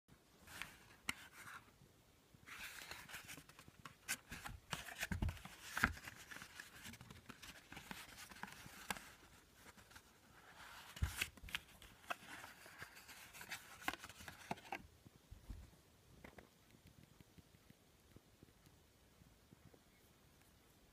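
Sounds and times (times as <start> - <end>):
cardboard rustling and scraping: 2.5 - 14.8.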